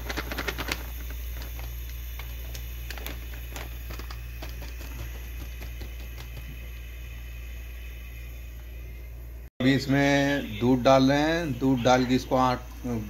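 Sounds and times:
plastic packet crinkling: 0.0 - 6.4
low hum: 0.0 - 13.0.

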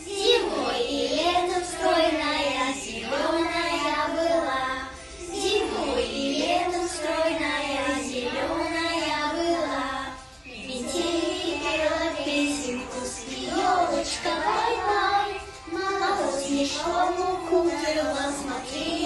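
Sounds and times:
children singing: 0.0 - 19.0
musical accompaniment: 0.0 - 19.0.

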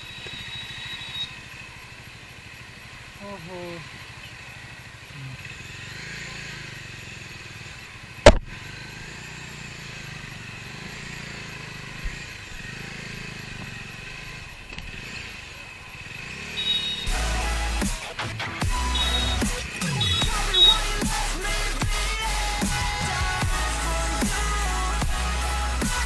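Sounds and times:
motorcycle engine running: 0.0 - 26.0
sharp knock: 8.2 - 8.5
music: 17.1 - 26.0.

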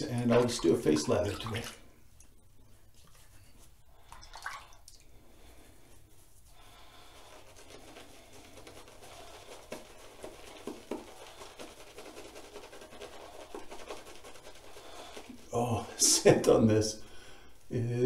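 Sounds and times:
shaving brush swishing on beard: 5.9 - 16.5.

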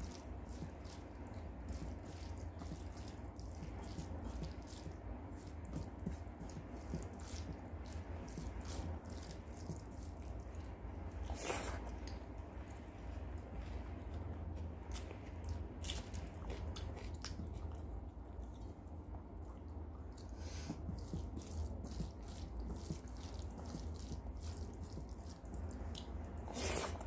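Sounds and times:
fingers squelching wet food: 0.0 - 27.0
steady low hum: 0.0 - 27.0.

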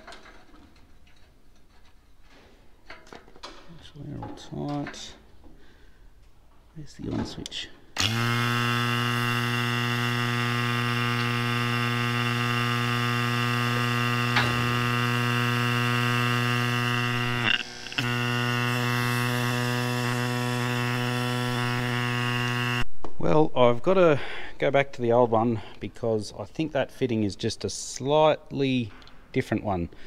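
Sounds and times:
vacuum pump humming: 8.0 - 22.9.

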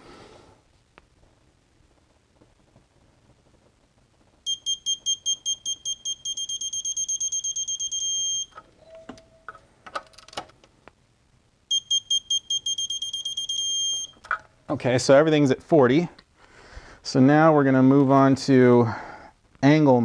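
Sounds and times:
torque wrench beeping: 4.5 - 9.1, 11.7 - 14.2.

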